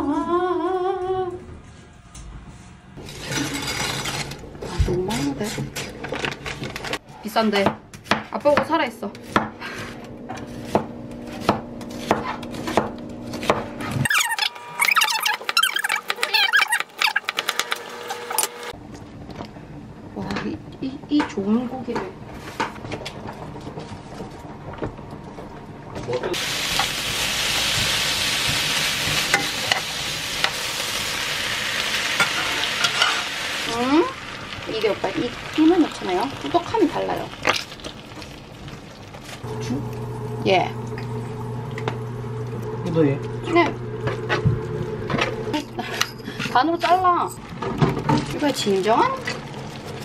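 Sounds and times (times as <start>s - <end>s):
beef and onion sizzling in pan: 26.4s - 42.4s.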